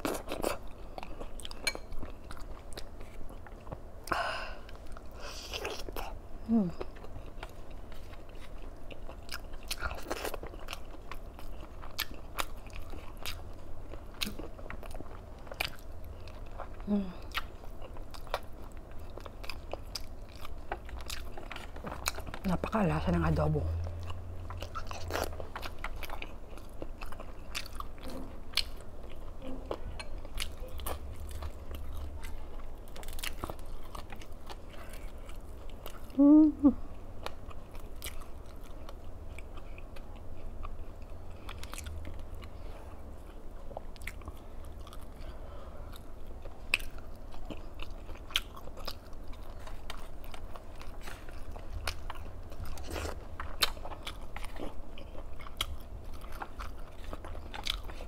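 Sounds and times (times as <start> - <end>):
person chewing and crunching food: 0.0 - 58.0
person humming: 36.1 - 36.8.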